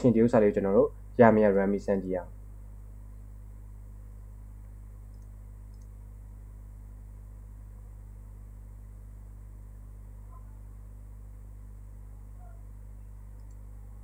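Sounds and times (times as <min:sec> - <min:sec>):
low electrical hum with hiss: 0:00.0 - 0:14.0
faint ticks: 0:04.6 - 0:06.0, 0:13.3 - 0:13.6.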